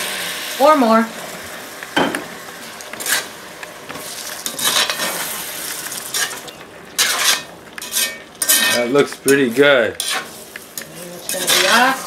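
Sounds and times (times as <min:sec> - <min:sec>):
wine sizzling in hot pot: 0:00.0 - 0:12.0
metal spoon scraping pot: 0:04.4 - 0:05.2, 0:07.0 - 0:09.4, 0:10.0 - 0:12.0.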